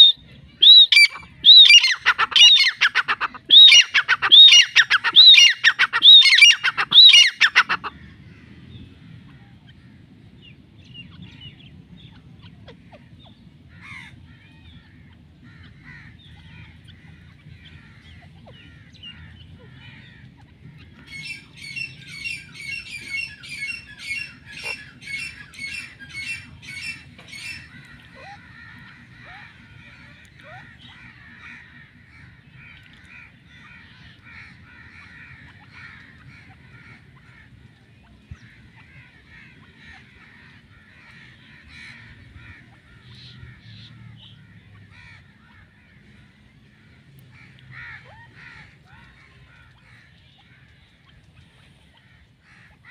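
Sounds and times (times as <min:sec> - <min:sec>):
francolin shrill calls: 0:00.0 - 0:07.8, 0:21.0 - 0:29.5
bird chatter: 0:09.6 - 0:52.9.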